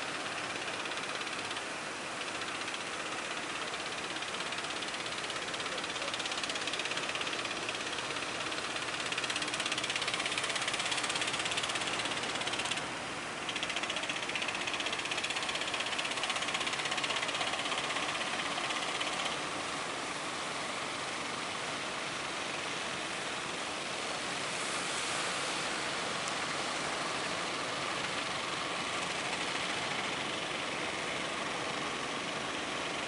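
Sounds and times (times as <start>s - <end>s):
boat engines clattering: 0.0s - 19.4s
surf hissing: 23.0s - 31.4s.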